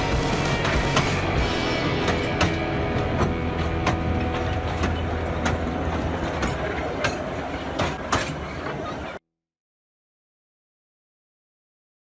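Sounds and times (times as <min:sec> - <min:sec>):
railway carriages rumbling past: 0:00.3 - 0:09.2
wheel clicks over rail joints: 0:02.0 - 0:08.8.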